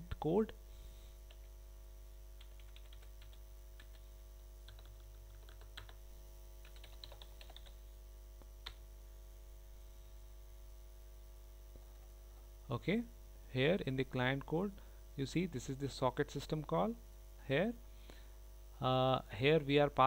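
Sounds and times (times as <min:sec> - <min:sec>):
electrical mains hum: 0:00.0 - 0:20.0
keyboard typing clicks: 0:02.4 - 0:04.0, 0:04.6 - 0:06.0, 0:06.6 - 0:07.8.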